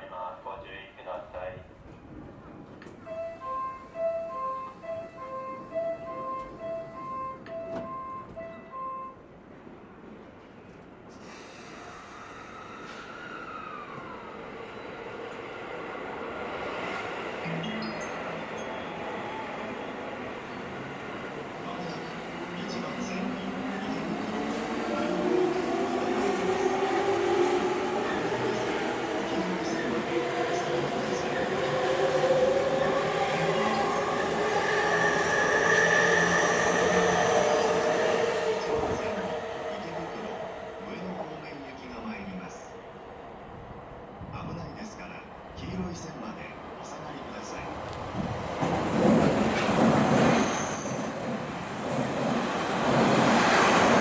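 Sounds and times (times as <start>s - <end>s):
held train tones: 1.0s - 10.5s, 11.1s - 54.0s
train hiss: 11.1s - 14.0s
electric train running on tracks: 15.3s - 54.0s.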